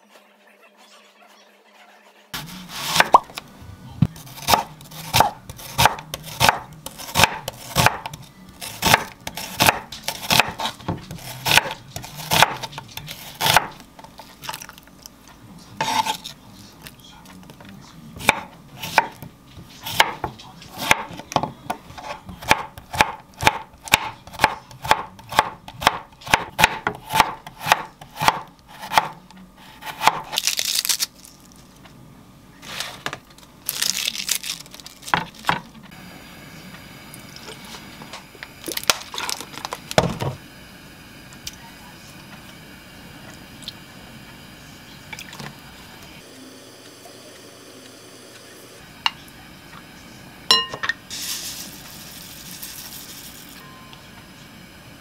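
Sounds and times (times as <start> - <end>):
knife chopping on wooden board: 2.4 - 3.3, 4.3 - 13.8, 18.2 - 29.2, 29.8 - 30.4.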